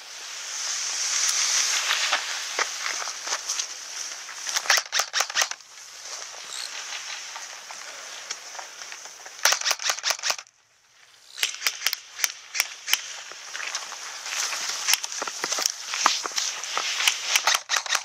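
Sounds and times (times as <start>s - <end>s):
airsoft rifle shots: 4.6s - 5.6s, 9.4s - 10.5s, 11.4s - 13.2s, 17.0s - 18.0s.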